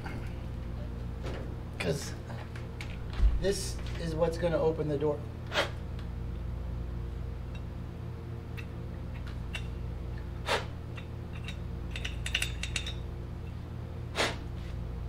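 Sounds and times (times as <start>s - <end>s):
steady low hum: 0.0s - 15.0s
small metallic clicks and rattles: 11.0s - 13.0s.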